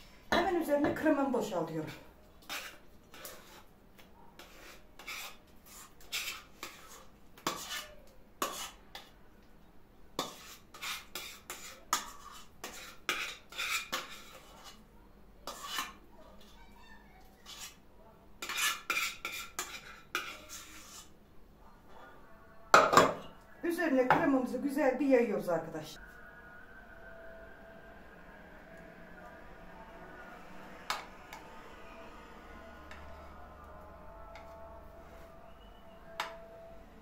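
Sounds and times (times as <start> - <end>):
utensil scraping a pot: 1.9 - 3.7, 4.4 - 9.1, 10.2 - 16.6, 17.2 - 17.8, 18.4 - 21.2.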